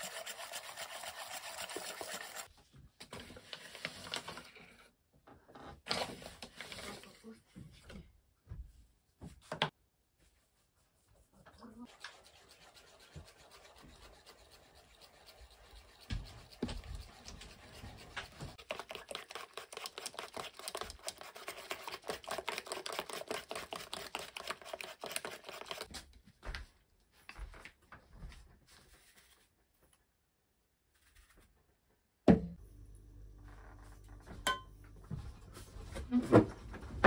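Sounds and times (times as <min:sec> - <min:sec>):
whisk beating batter in bowl: 0:00.0 - 0:02.5, 0:11.6 - 0:25.9.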